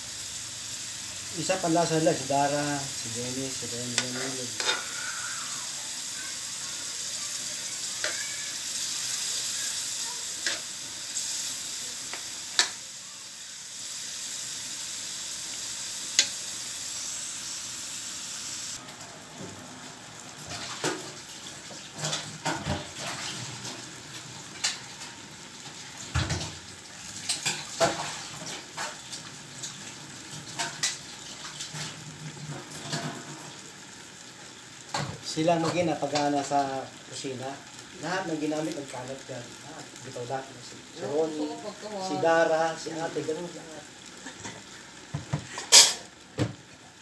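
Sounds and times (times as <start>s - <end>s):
meat sizzling in a wok: 0.0s - 47.0s
kitchen knocks and clatter: 21.8s - 23.3s, 26.1s - 26.6s, 45.1s - 46.6s.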